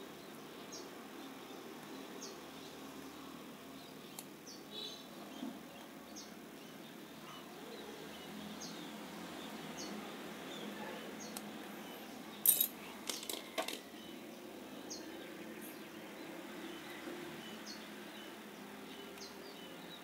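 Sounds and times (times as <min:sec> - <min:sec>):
metal reel parts clicking: 0:12.4 - 0:13.8.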